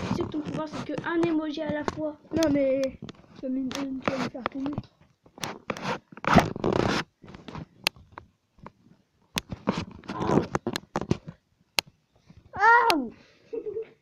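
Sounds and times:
phone rubbing against fabric: 0.0 - 2.1, 3.0 - 4.8, 5.4 - 7.8, 9.5 - 11.3
sharp clicks and knocks: 0.0 - 12.0.

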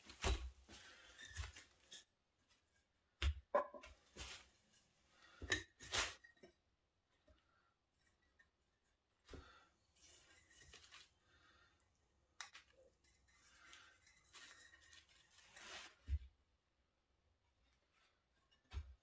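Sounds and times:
soft rustling: 12.6 - 16.3.

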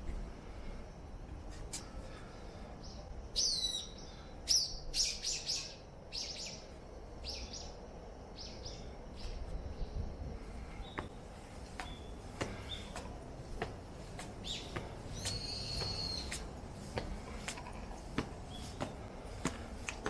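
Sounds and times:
small birds chirping: 1.7 - 20.0.

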